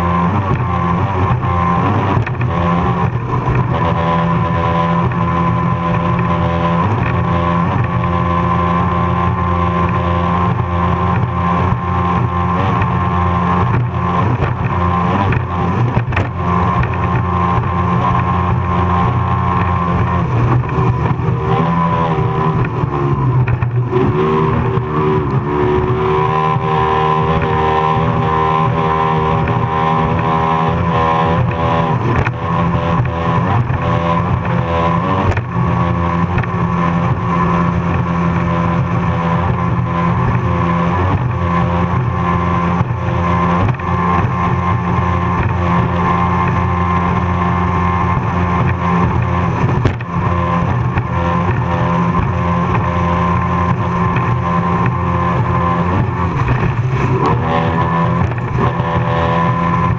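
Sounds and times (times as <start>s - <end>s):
powerboat engine running flat out: 0.0s - 59.9s
rush of wind and water: 40.9s - 59.1s.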